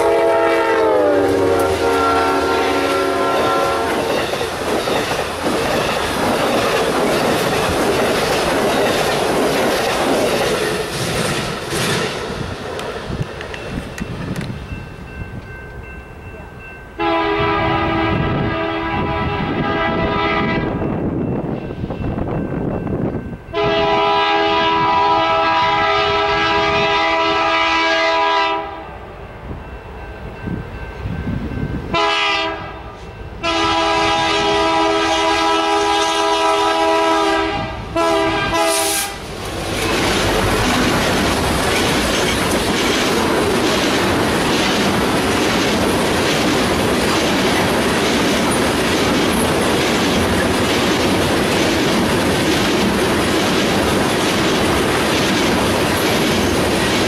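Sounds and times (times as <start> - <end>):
locomotive air horn: 0.0 - 4.0, 17.0 - 20.8, 23.5 - 28.9, 31.9 - 39.2
locomotive passing: 0.0 - 57.0
train cars rumbling past: 0.0 - 57.0
wheels clacking over rail joints: 3.9 - 14.6, 39.3 - 57.0.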